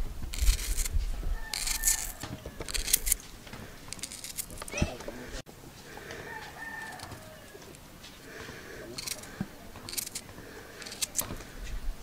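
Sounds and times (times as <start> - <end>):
blade scraping a tuber: 0.3 - 5.3, 8.9 - 11.4.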